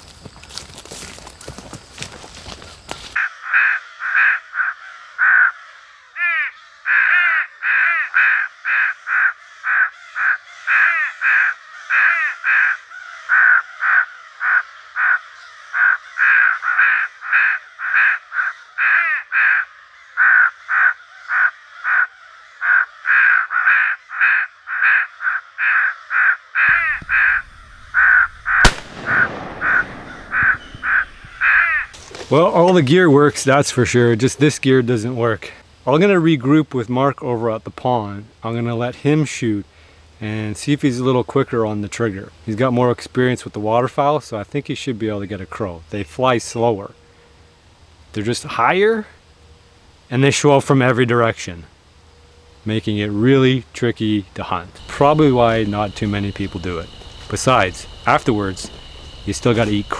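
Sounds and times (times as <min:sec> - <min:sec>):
recorded crow caws: 0:03.2 - 0:32.0, 0:54.8 - 0:59.9
sharp crack: 0:26.7 - 0:32.4.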